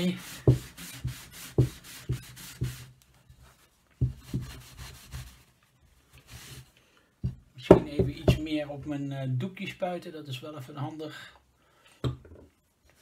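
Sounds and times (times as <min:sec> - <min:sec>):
cloth rubbing wood: 0:00.0 - 0:06.7.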